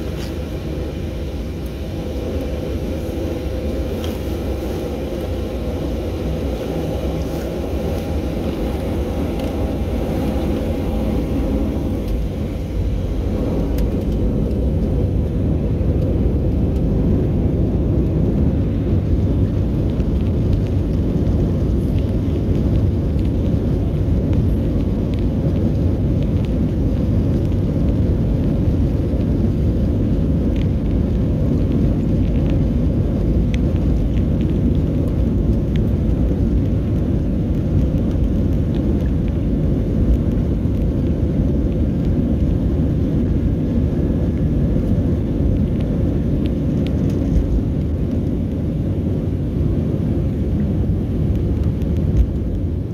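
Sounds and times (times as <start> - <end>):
jet cabin roar during takeoff: 0.0 - 52.9.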